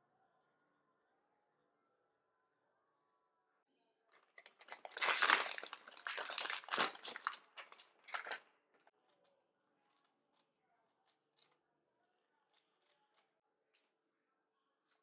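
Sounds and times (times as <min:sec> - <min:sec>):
plastic pack crinkling: 0:04.2 - 0:08.9.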